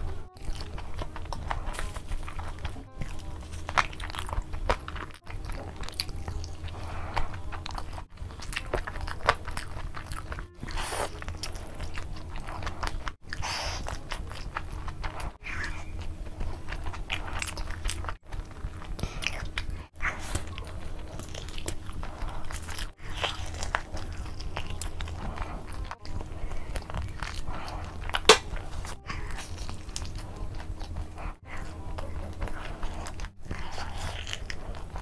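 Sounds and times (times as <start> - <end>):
biting and chewing fried chicken: 0.0 - 35.0.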